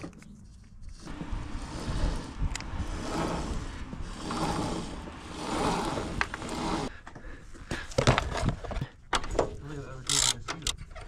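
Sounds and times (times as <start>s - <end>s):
scraping and rubbing handling noise: 0.0s - 7.1s.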